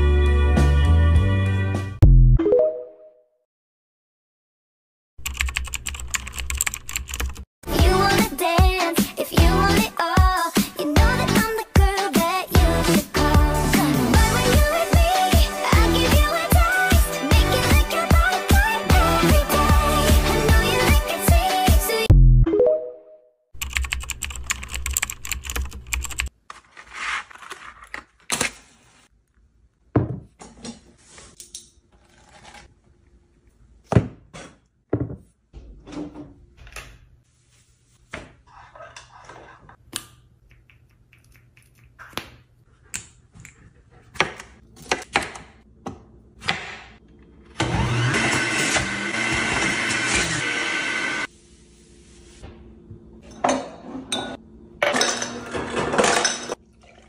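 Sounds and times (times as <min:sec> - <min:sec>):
electric juicer running: 0:47.6 - 0:51.3.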